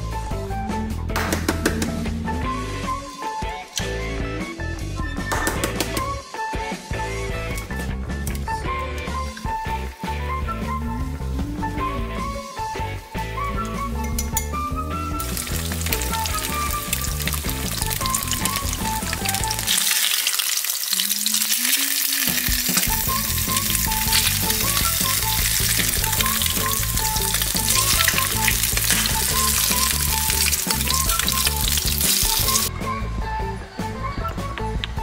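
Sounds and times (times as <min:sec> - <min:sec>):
background music: 0:00.0 - 0:35.0
eggs sizzling in a frying pan: 0:15.2 - 0:32.7.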